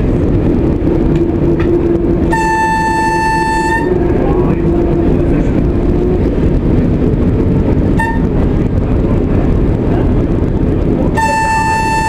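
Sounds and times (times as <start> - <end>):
railbus engine and wheels rumbling: 0.0 - 12.0
train horn blip: 2.2 - 4.0, 7.9 - 8.4, 11.1 - 12.0.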